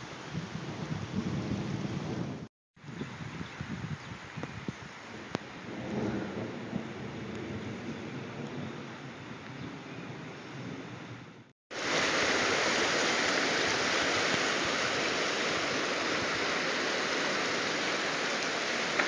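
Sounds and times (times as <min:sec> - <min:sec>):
floodwater rushing: 0:11.7 - 0:19.0.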